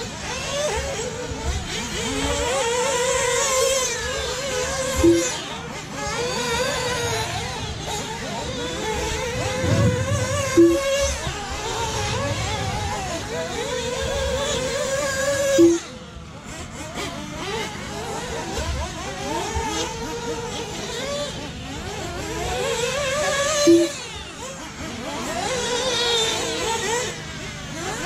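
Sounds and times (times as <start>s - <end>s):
rc car motors whining: 0.0s - 28.0s
short low beeps: 9.4s - 10.9s.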